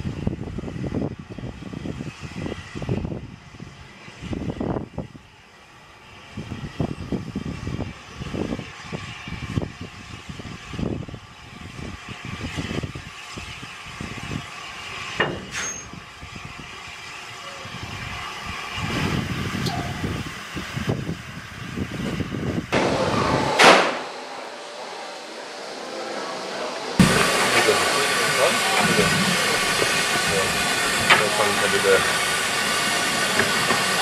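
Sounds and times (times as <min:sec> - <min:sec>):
steam escaping: 0:00.0 - 0:34.0
steam locomotive exhaust beats: 0:00.0 - 0:34.0
brief loud noise: 0:22.8 - 0:26.4.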